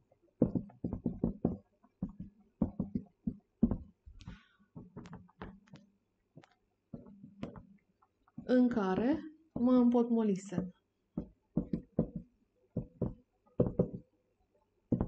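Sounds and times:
marker pen writing on whiteboard: 0.4 - 5.8, 6.9 - 7.7, 10.6 - 14.1.

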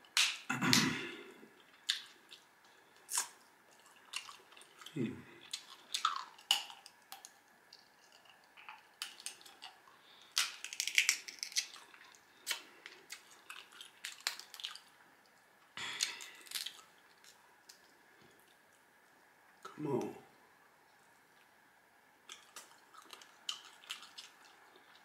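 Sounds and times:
crab shells cracking: 0.1 - 0.9, 5.5 - 15.0, 15.8 - 17.9, 22.2 - 25.0
wet sucking and chewing: 0.2 - 15.0, 22.3 - 25.0.

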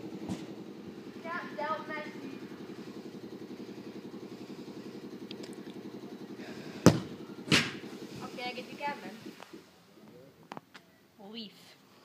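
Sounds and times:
low pulsing engine hum: 0.0 - 11.2
ball thudding against something: 6.8 - 7.8
bare foot kicking a football: 6.8 - 7.8.

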